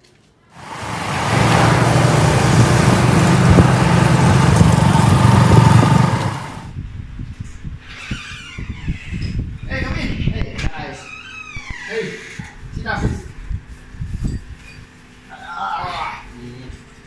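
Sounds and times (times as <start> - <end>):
motorcycle engine riding off: 0.6 - 6.7.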